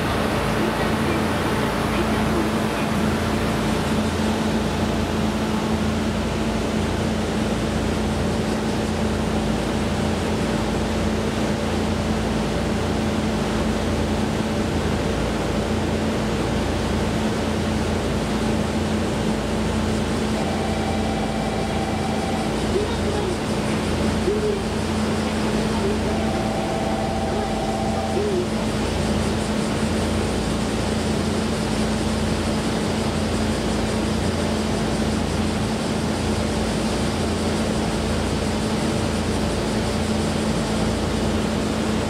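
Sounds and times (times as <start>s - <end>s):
mechanical hum: 18.5s - 42.0s
faint higher tone: 20.4s - 23.3s, 25.8s - 28.6s
constant low tone: 20.4s - 29.0s.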